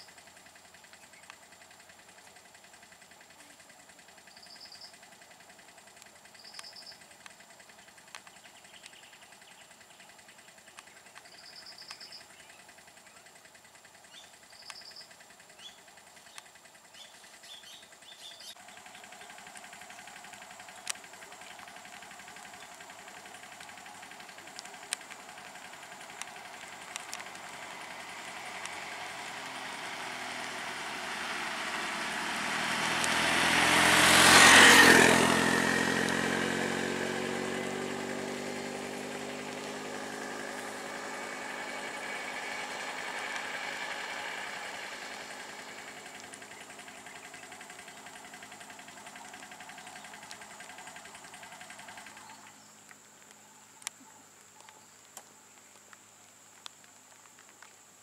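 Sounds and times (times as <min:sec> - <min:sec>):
quieter engine running: 0:00.0 - 0:58.0
vehicle engine passing by: 0:16.6 - 0:52.8.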